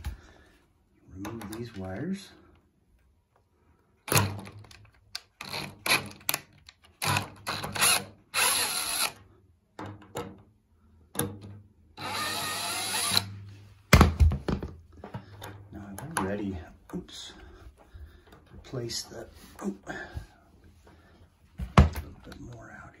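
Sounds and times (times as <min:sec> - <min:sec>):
cordless drill spinning: 0:05.3 - 0:06.4, 0:07.0 - 0:09.3, 0:12.0 - 0:13.4.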